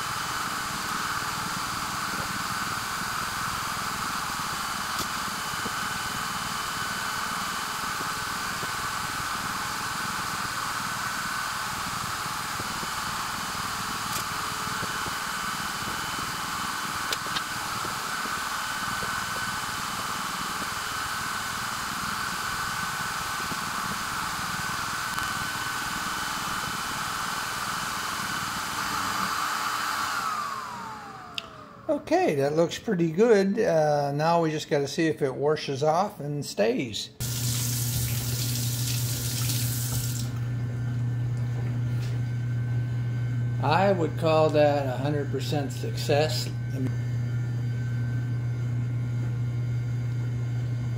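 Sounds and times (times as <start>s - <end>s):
motor whine: 0.0s - 32.0s, 37.2s - 50.9s.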